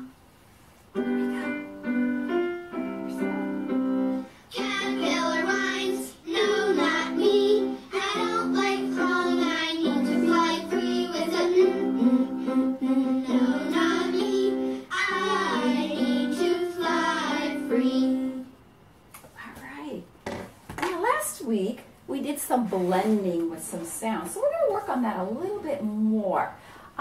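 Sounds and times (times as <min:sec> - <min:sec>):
instrumental chords: 0:01.0 - 0:05.3
person singing: 0:04.5 - 0:18.5.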